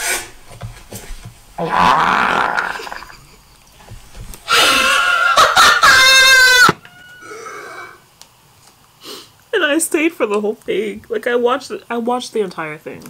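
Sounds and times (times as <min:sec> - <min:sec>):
noisy vocal outburst: 0:01.6 - 0:03.2
woman screaming: 0:04.5 - 0:06.8.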